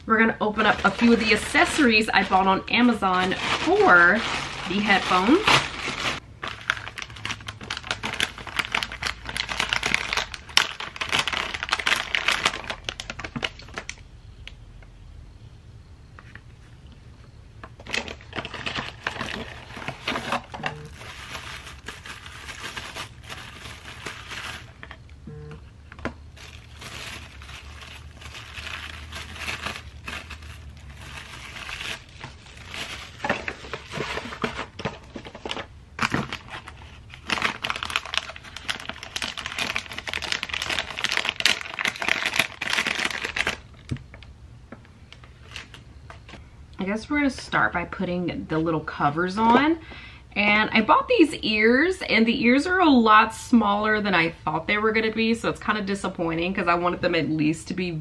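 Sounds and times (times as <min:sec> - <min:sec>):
packaging crinkling and rustling: 0:00.5 - 0:14.0, 0:17.7 - 0:25.2, 0:25.9 - 0:44.3, 0:45.1 - 0:46.4.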